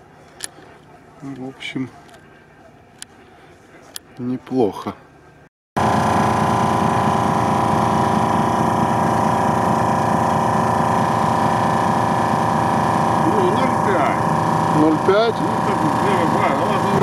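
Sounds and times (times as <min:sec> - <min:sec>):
air compressor running: 0:05.8 - 0:17.0.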